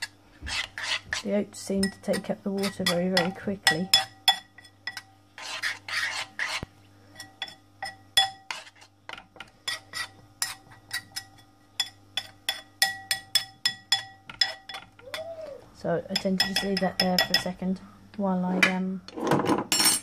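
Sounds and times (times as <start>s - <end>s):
spoon scraping bowl: 0.0s - 15.3s, 16.1s - 17.6s
spoon clinking in bowl: 2.8s - 5.1s, 10.4s - 14.9s, 16.2s - 17.5s.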